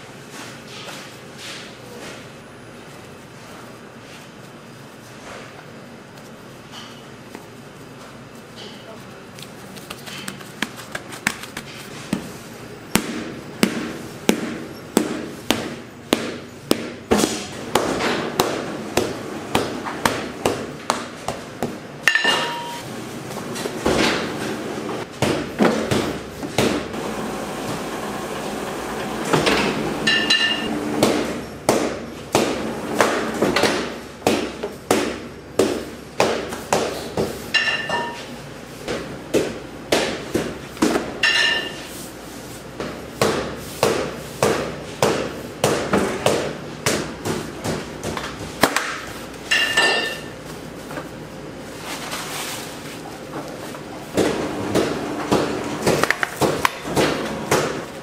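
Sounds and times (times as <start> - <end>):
short high ringing tones: 30.1 - 30.7.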